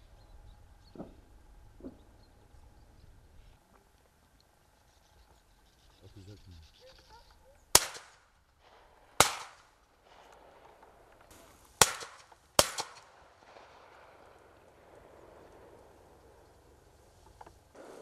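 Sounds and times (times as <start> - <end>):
shotgun shots echoing: 7.7 - 16.8.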